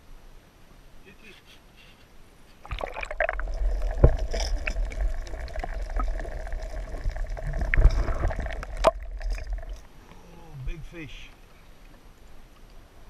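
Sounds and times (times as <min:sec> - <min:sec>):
faint steady hum: 0:00.0 - 0:13.0
water rushing and gurgling: 0:02.6 - 0:13.0.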